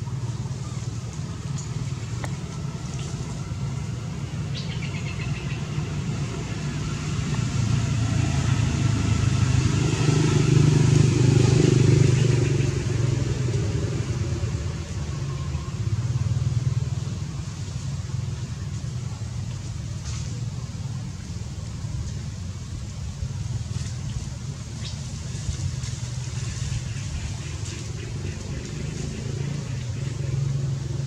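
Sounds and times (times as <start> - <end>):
vehicle engine hum: 0.0 - 31.0.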